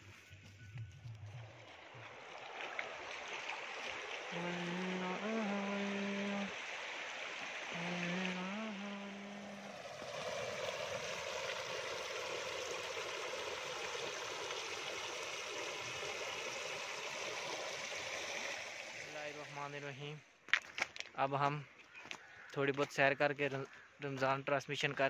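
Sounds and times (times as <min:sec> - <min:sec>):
river water rushing and churning: 0:01.5 - 0:19.7.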